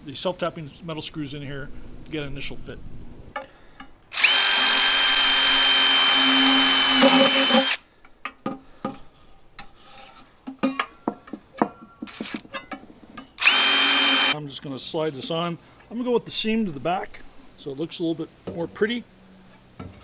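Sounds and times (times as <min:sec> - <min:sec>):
cordless driver whining: 0:04.1 - 0:07.8, 0:13.4 - 0:14.4.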